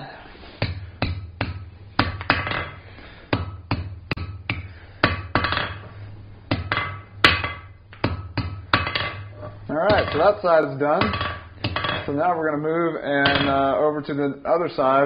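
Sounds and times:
hammer striking steel on anvil: 0:00.6 - 0:12.1.

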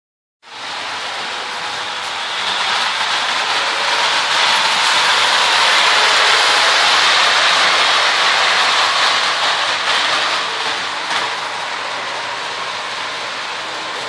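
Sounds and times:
model train wheels whirring: 0:00.5 - 0:14.0.

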